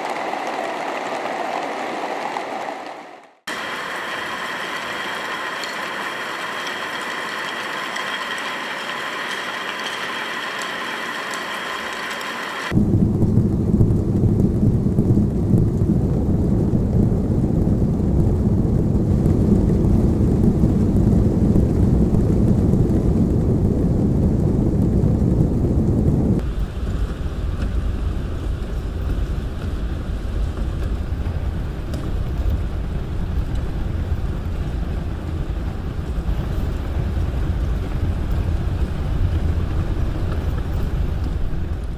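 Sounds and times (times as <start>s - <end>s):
motors rattling in cardboard boxes: 3.5s - 12.7s
ringing whirr of wobbling discs: 3.5s - 12.7s.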